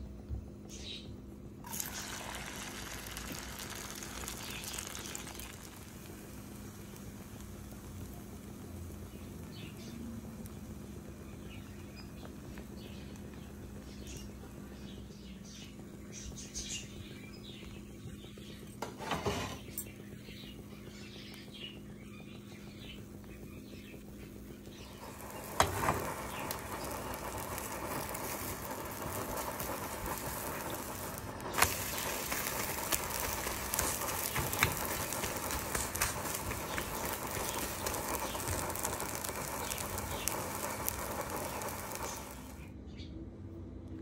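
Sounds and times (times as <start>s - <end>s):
steady low hum: 0.0s - 44.0s
egg mixture sizzling in frying pan: 1.4s - 42.7s
frying pan clatter: 18.8s - 19.9s, 24.9s - 42.4s.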